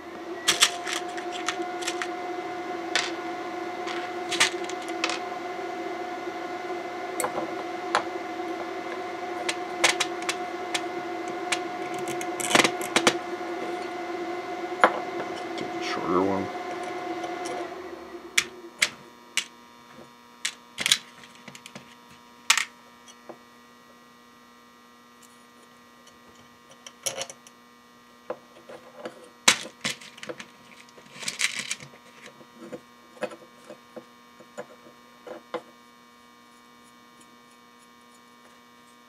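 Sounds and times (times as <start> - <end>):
steady electrical hum: 0.0 - 28.0.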